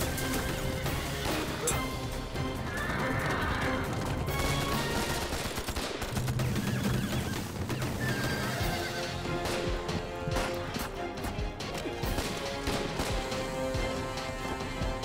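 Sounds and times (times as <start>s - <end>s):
rifle and machine-gun fire: 3.8s - 8.2s, 12.0s - 13.5s.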